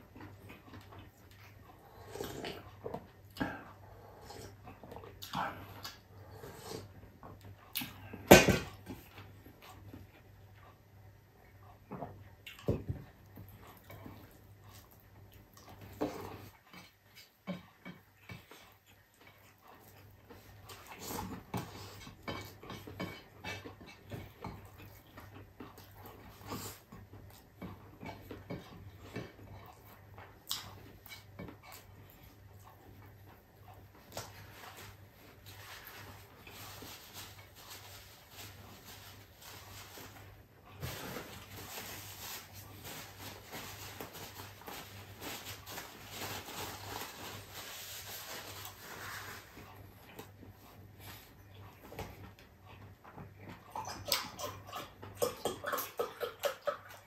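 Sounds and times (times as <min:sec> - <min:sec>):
man chewing food: 0:00.0 - 0:57.0
paper tissue rustling: 0:35.6 - 0:49.6.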